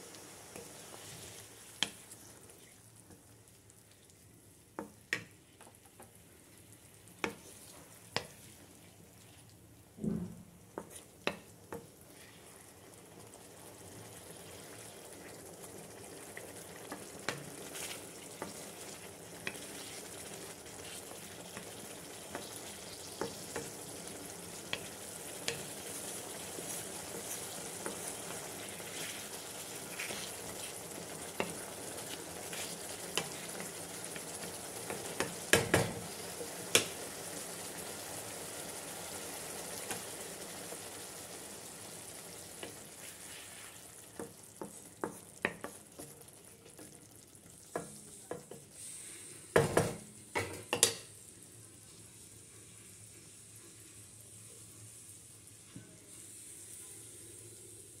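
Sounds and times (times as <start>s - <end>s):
curry sizzling in a pan: 0.0s - 58.0s
spatula scraping and knocking pan: 26.6s - 36.0s.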